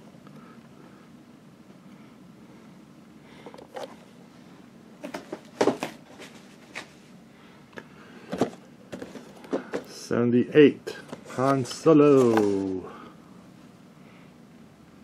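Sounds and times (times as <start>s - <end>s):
cardboard boxes being shuffled: 8.3s - 9.9s, 11.0s - 12.9s.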